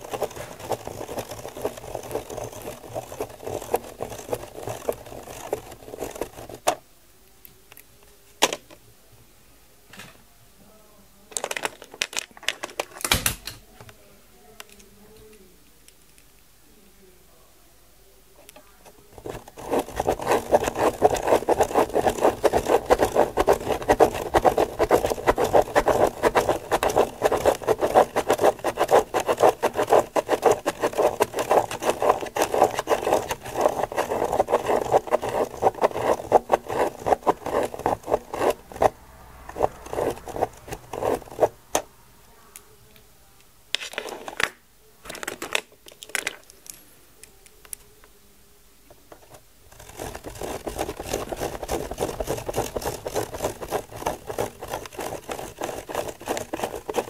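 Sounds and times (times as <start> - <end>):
pen scratching on paper: 0.0 - 6.7, 19.1 - 41.6, 49.7 - 57.0
plastic gear teeth clicking: 0.0 - 6.7, 19.2 - 38.9, 49.7 - 57.0.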